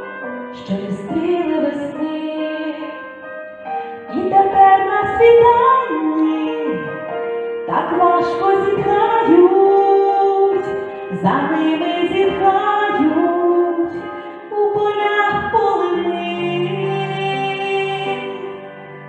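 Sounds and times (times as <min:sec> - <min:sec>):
instrumental accompaniment: 0:00.0 - 0:19.0.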